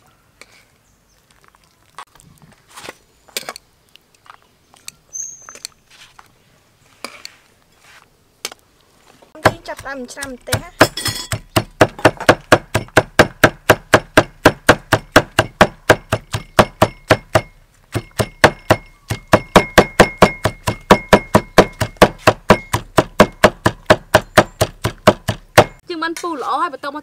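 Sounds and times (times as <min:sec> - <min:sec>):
cleaver chopping on wooden block: 0:09.4 - 0:25.8.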